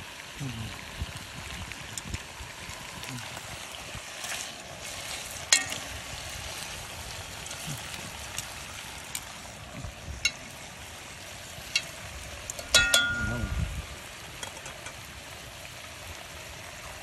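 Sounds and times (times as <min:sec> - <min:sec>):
food sizzling in a pot: 0:00.0 - 0:17.0
metal tongs clicking on pot: 0:05.5 - 0:05.9, 0:11.7 - 0:13.5, 0:14.4 - 0:15.0.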